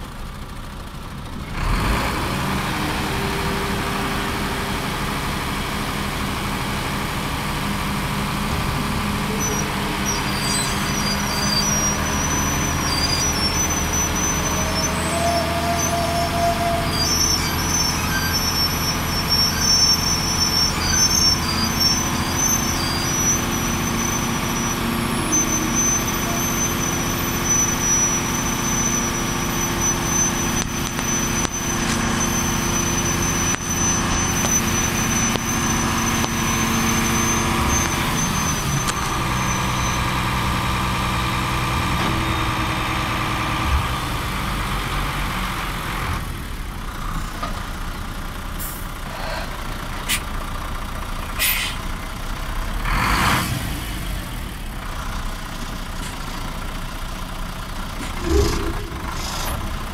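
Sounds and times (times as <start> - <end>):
truck diesel engine running: 0.0 - 59.9
short hiss of air: 51.4 - 51.8.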